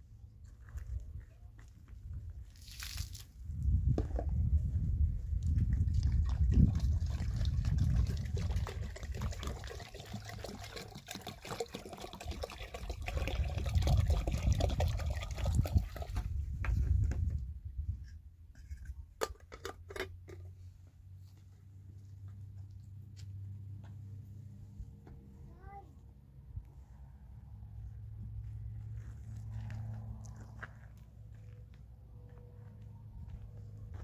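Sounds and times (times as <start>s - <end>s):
water pouring into metal kettle: 6.1s - 16.3s.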